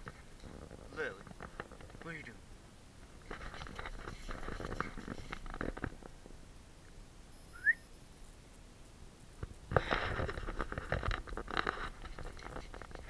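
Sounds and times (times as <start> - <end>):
rising whistle-like chirp: 7.4 - 8.0.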